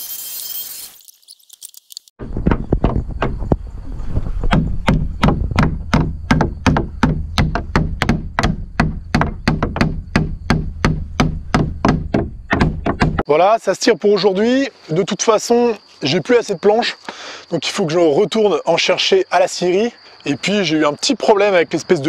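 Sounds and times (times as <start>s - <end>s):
hammer striking wood: 4.5s - 13.2s.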